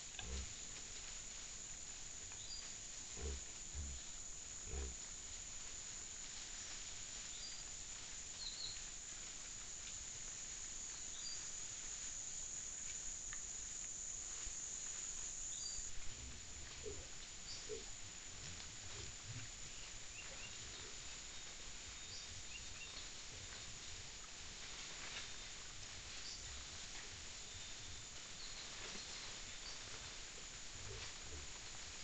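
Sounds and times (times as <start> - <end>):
peccaries grunting: 0.2 - 0.5, 3.1 - 5.0.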